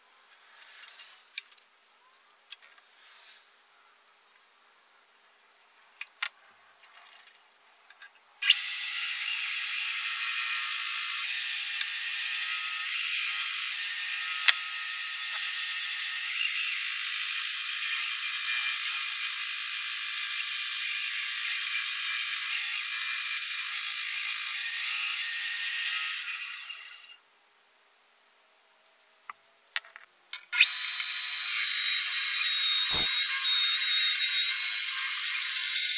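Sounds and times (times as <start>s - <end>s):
bandsaw cutting wood: 8.4s - 27.1s, 30.6s - 35.9s.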